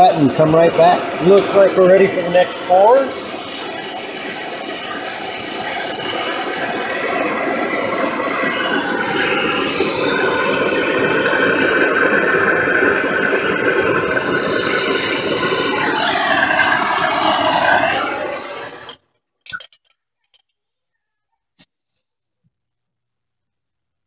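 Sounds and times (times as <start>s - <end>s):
gas torch roaring: 0.0s - 19.0s.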